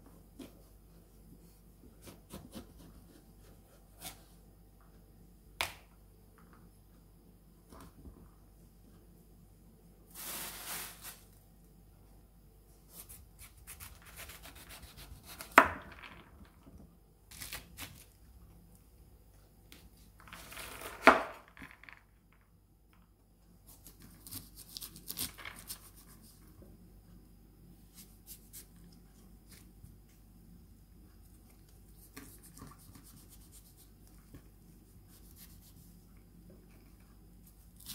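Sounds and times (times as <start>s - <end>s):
knife cutting and scraping: 12.9s - 15.6s.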